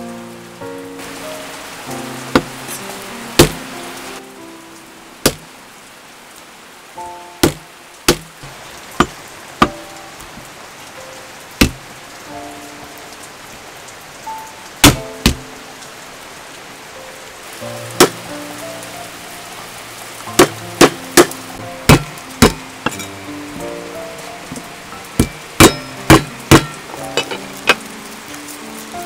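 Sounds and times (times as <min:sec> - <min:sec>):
soft background music: 0:00.0 - 0:06.0, 0:06.7 - 0:08.1, 0:09.4 - 0:29.0
cleaver knocking on chopping block: 0:05.3 - 0:05.5, 0:07.4 - 0:09.8, 0:11.6 - 0:11.8, 0:14.8 - 0:15.4, 0:20.4 - 0:23.0, 0:25.2 - 0:27.8.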